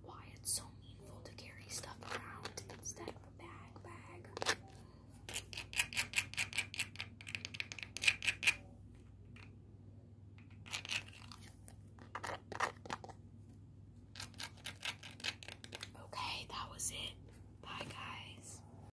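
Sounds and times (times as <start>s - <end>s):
fingernails scratching craft piece: 14.2s - 15.8s.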